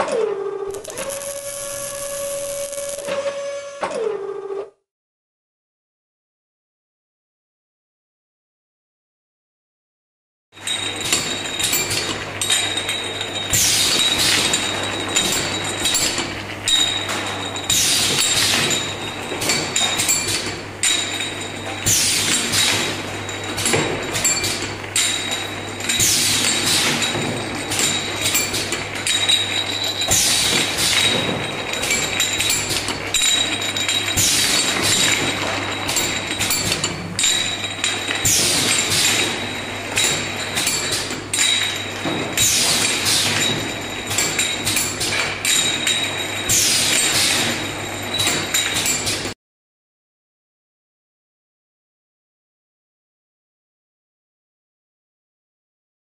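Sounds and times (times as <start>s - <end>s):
machine low hum: 0.4s - 4.6s
glass jars clinking: 10.6s - 49.2s.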